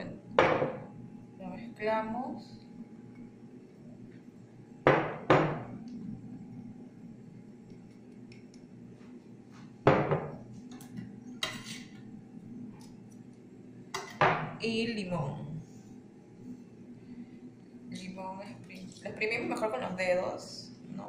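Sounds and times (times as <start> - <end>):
knife scraping cutting board: 11.4 - 11.9.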